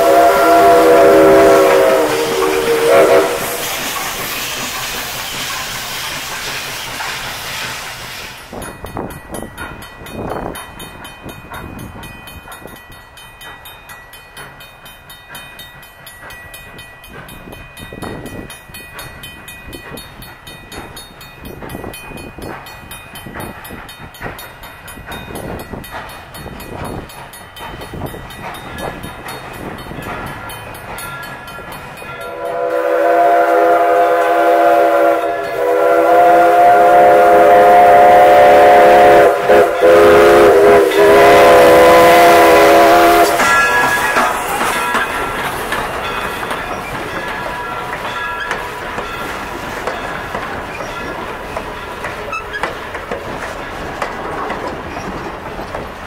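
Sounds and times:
locomotive chime whistle: 0:00.0 - 0:06.6, 0:30.4 - 0:49.2
steam locomotive chuffing: 0:00.0 - 0:56.0.

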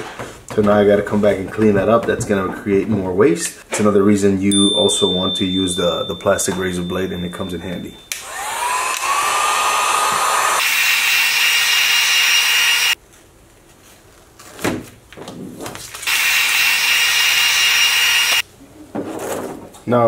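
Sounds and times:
heat gun blowing with whine: 0:08.1 - 0:13.0, 0:16.0 - 0:18.4.

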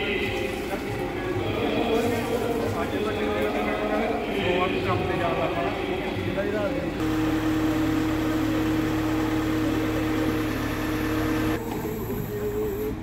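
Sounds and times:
truck engine humming: 0:07.0 - 0:13.0.

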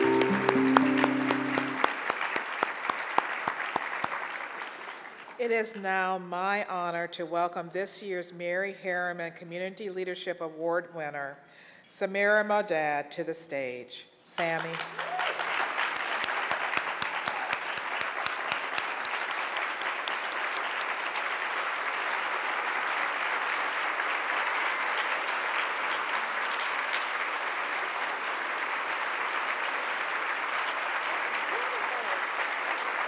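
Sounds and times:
audience applauding: 0:00.0 - 0:05.4, 0:14.5 - 0:33.0.

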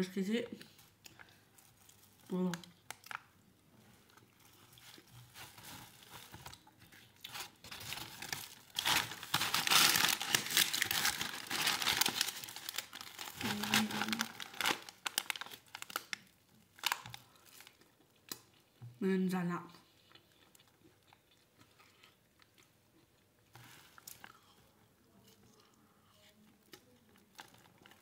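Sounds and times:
paper wrapper crinkling: 0:04.4 - 0:17.8.

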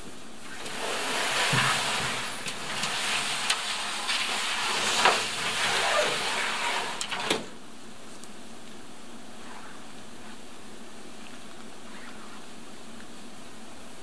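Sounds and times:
canoe hull scraping over grass: 0:00.4 - 0:07.6.

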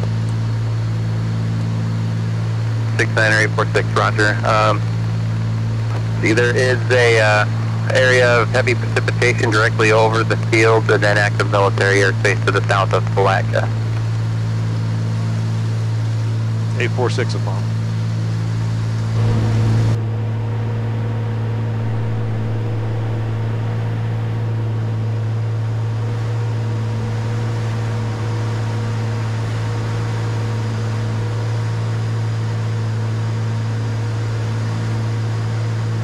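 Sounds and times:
propeller engines droning: 0:00.0 - 0:36.0
rush of noise: 0:02.8 - 0:36.0.

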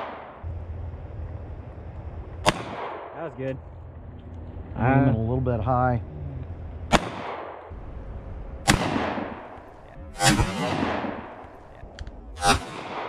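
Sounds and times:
pistol shots with echo: 0:02.4 - 0:03.2, 0:06.9 - 0:07.7, 0:08.6 - 0:11.6, 0:12.5 - 0:13.0
shotgun blast: 0:02.4 - 0:03.2, 0:06.9 - 0:07.7, 0:08.6 - 0:11.6, 0:12.4 - 0:13.0.

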